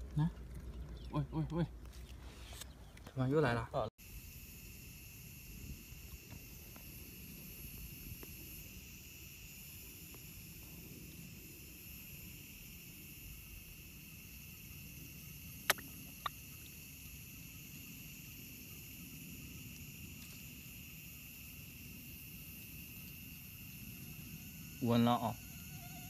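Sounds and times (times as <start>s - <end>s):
high insect drone: 3.3s - 26.0s
sharp clicks: 15.7s - 16.4s.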